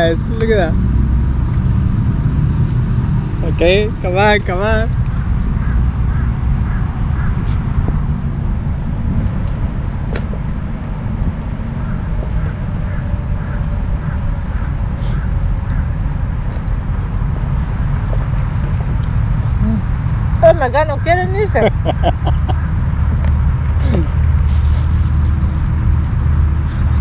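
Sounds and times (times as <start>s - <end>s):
wind rumble on microphone: 0.0s - 27.0s
bird calling: 4.9s - 7.6s, 11.7s - 16.1s, 17.6s - 22.8s.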